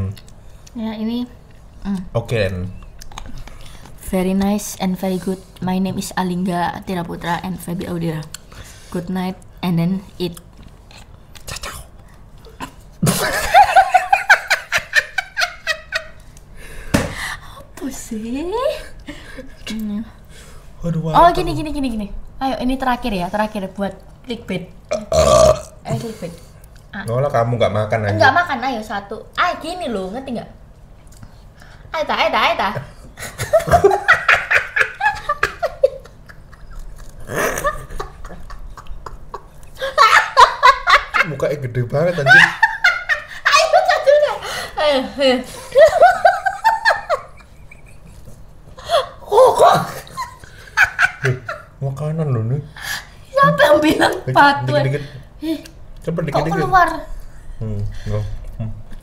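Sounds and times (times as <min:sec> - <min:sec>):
man and woman laughing: 0:13.0 - 0:16.2, 0:33.2 - 0:44.4, 0:45.5 - 0:51.7.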